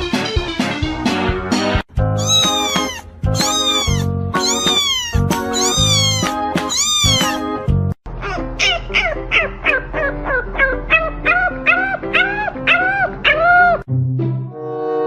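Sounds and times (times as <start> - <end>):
background music: 0.0 - 15.0
kitten meowing: 2.2 - 7.5, 10.6 - 13.8.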